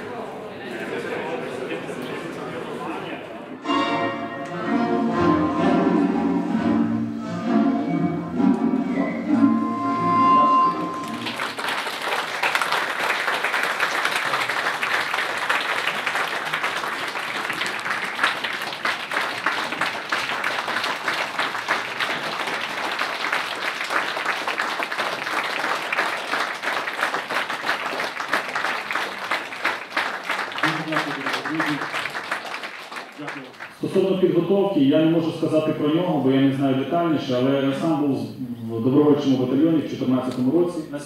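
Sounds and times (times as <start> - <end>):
film music held tone: 3.6 - 11.4
audience clapping: 10.9 - 34.5.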